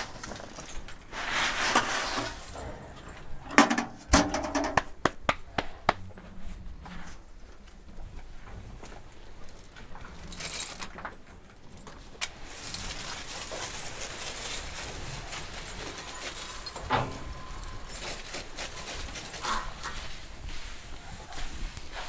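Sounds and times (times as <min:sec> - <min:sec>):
straw rustling and scraping: 0:00.0 - 0:02.6, 0:12.3 - 0:22.0
metallic rattles: 0:09.4 - 0:19.6.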